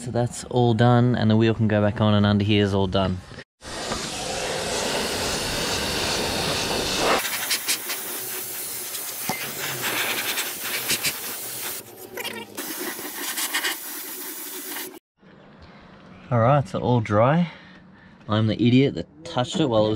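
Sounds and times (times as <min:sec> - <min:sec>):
paint spray gun hissing: 0:03.6 - 0:12.0, 0:12.6 - 0:15.0.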